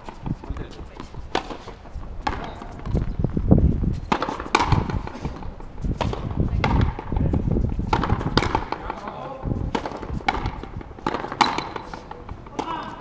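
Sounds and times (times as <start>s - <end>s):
rubber ball cracking off rackets: 4.1s - 7.1s, 7.9s - 12.8s.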